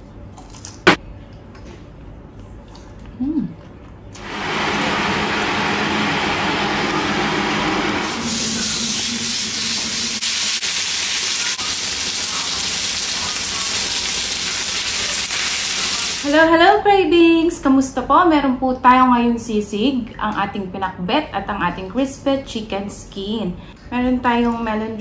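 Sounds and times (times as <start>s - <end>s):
food sizzling in hot oil: 4.2s - 16.3s.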